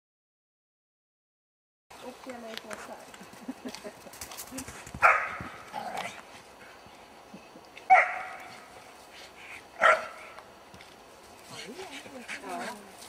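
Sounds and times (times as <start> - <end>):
dog barking: 5.0 - 5.4, 7.9 - 8.5, 9.8 - 10.3.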